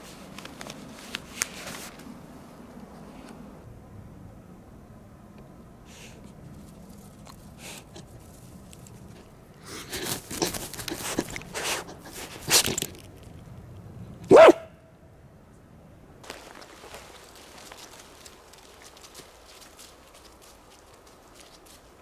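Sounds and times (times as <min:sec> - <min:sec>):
close rustling and scuffling: 0:00.0 - 0:02.2, 0:06.2 - 0:13.4, 0:16.2 - 0:22.0
dog barking: 0:14.3 - 0:14.7.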